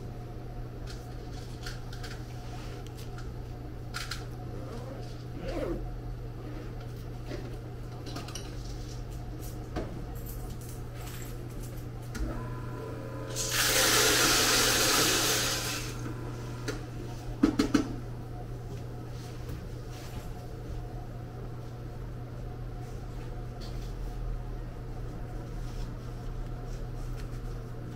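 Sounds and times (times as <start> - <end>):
coffee grinder grinding beans: 12.8 - 16.6.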